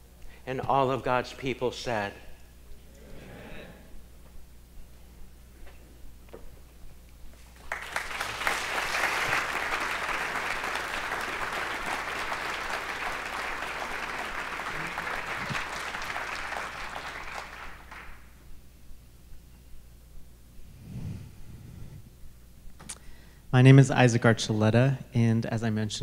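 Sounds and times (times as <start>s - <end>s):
audience applauding: 7.6s - 18.3s.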